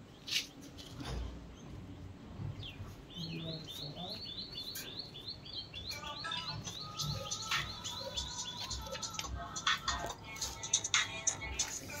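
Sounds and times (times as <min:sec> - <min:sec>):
parakeet chirping: 0:02.6 - 0:10.0.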